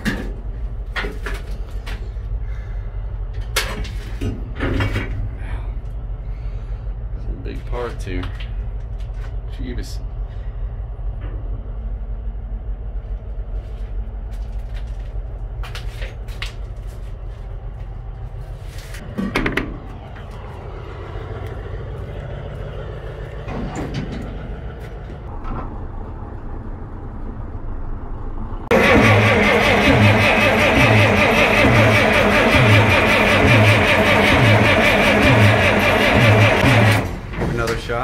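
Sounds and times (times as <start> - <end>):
diesel engine running: 0.0 - 38.0
steady low rumble: 0.0 - 38.0
metal knocks and clanks: 23.4 - 25.7.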